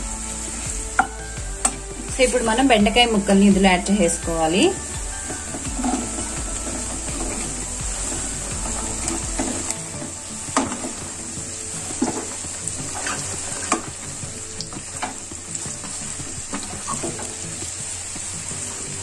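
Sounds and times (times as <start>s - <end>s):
okra sizzling in hot oil: 0.0s - 19.0s
spatula scraping pan: 5.2s - 14.0s.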